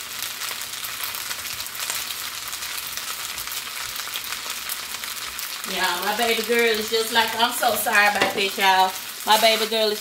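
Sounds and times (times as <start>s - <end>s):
fried rice sizzling in a pan: 0.0s - 10.0s.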